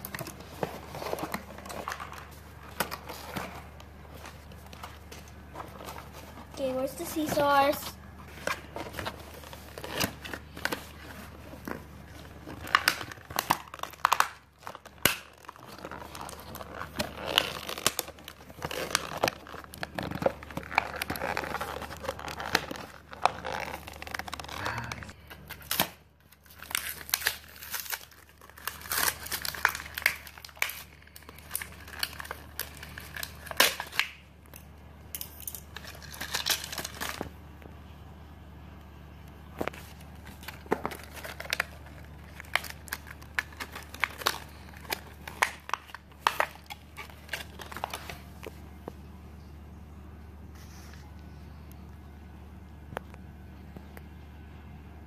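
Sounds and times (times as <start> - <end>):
plastic packaging crinkling: 0.0 - 37.4, 39.5 - 48.7
scissors cutting plastic: 12.4 - 24.6, 25.5 - 37.3.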